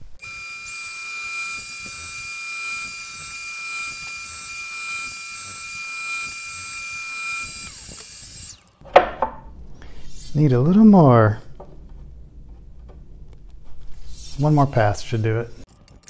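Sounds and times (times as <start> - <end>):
table saw whining: 0.2 - 8.8.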